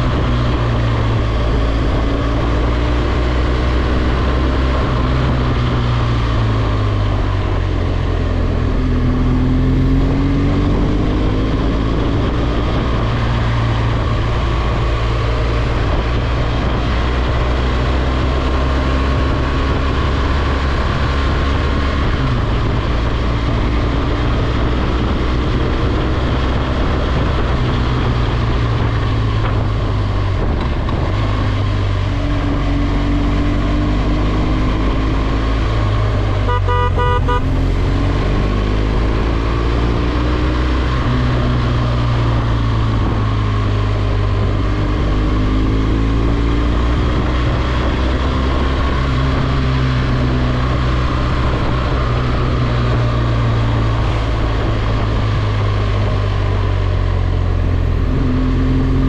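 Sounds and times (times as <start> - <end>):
motorcycle engine cruising: 0.0 - 59.0
wind noise on microphone: 0.0 - 59.0
horn toot: 36.4 - 37.7.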